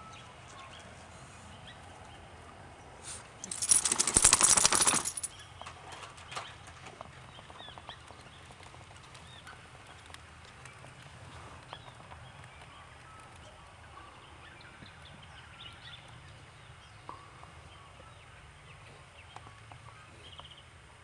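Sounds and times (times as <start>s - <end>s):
bird wings flapping: 3.5s - 6.9s.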